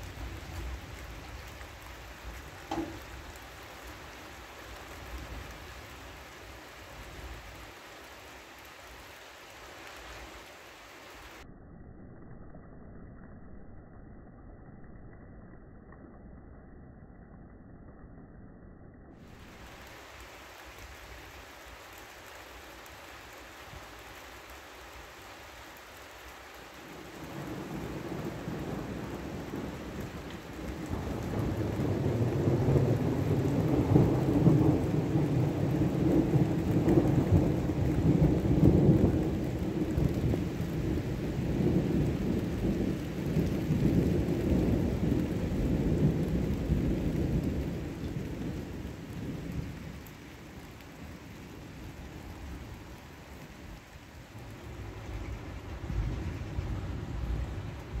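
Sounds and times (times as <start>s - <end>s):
rolling thunder: 0.0s - 6.0s, 27.0s - 52.8s, 53.5s - 58.0s.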